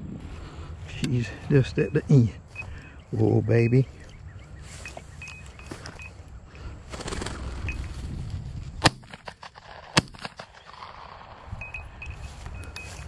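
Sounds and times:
shotgun shots: 8.8s - 11.5s.

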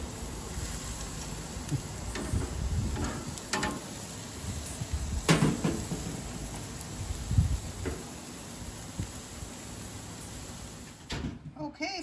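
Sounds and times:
metal tongs clacking on grill grates: 1.1s - 4.2s.

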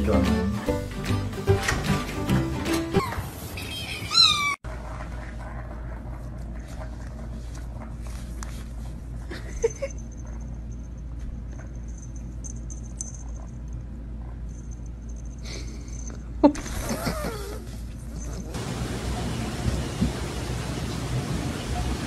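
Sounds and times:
cat meowing: 4.1s - 4.6s
steady low hum: 4.7s - 22.0s.

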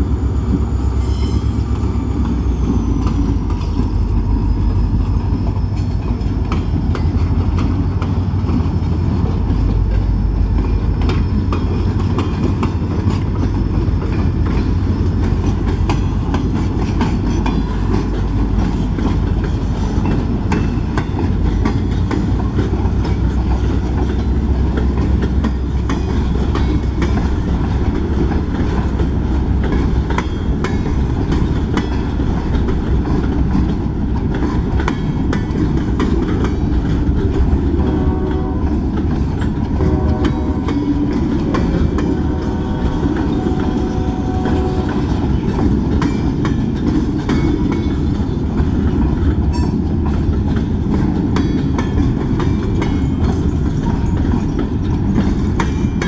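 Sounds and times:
diesel locomotive passing: 0.0s - 56.0s
freight cars rumbling: 0.0s - 56.0s
faint high squeal: 0.2s - 6.0s
wheels clacking over rail joints: 0.2s - 56.0s.

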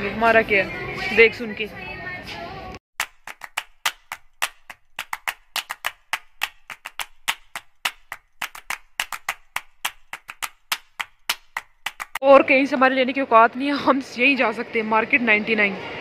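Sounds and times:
rapid sharp clicks: 3.0s - 12.2s.

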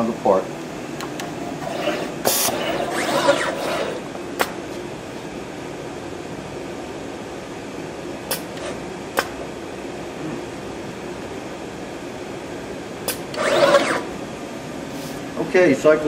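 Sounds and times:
soldering robot humming: 0.7s - 4.2s, 13.0s - 14.3s.

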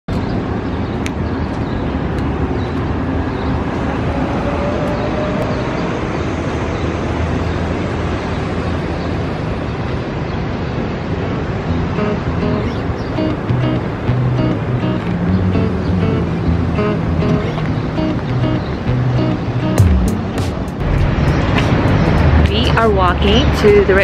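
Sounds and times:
street traffic rumble: 0.1s - 24.0s
music: 11.7s - 24.0s.

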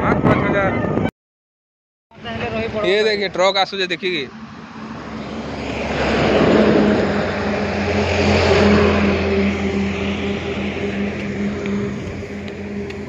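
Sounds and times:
diesel truck engine droning: 2.1s - 13.0s
tyre and wind rush: 4.8s - 13.0s.

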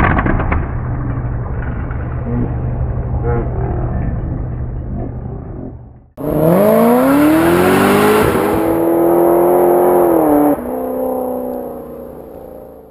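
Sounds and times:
car engine revving: 6.2s - 12.9s.

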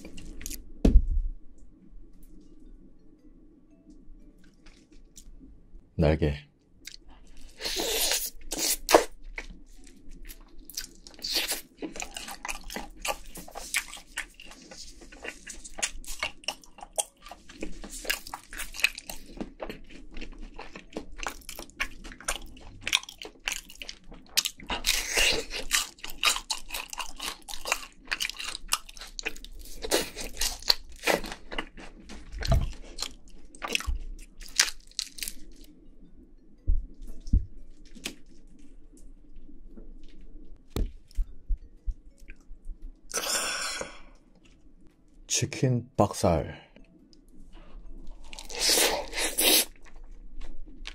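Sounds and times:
crunching fried chicken: 6.9s - 35.7s.

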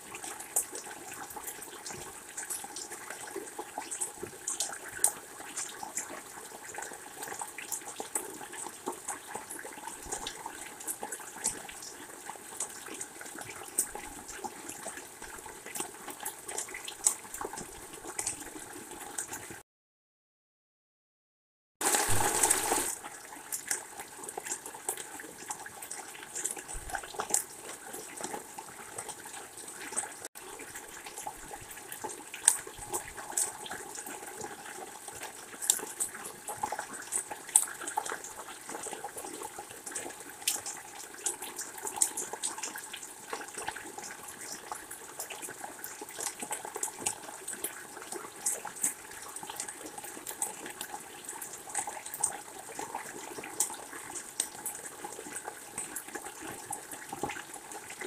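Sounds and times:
steady rain falling: 21.8s - 45.2s.

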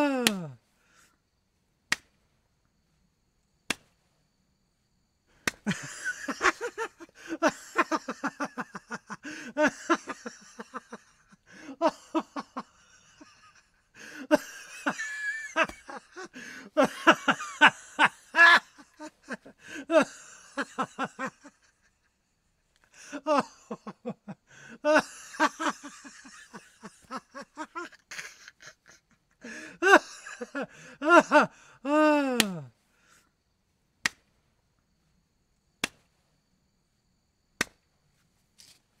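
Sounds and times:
man laughing loudly: 0.0s - 0.6s, 5.6s - 22.2s, 23.0s - 32.7s
sharp single clicks: 0.2s - 0.5s, 1.9s - 2.3s, 3.6s - 4.0s, 5.4s - 5.8s, 34.0s - 34.4s, 35.8s - 36.1s, 37.6s - 37.8s.

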